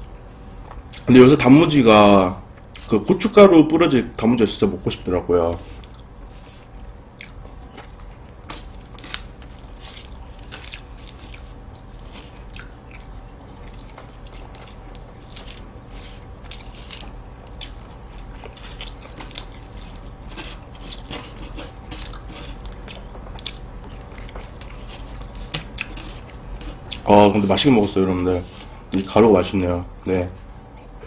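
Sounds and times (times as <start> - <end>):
crunching and chewing pastry: 0.7 - 1.2, 5.4 - 29.2.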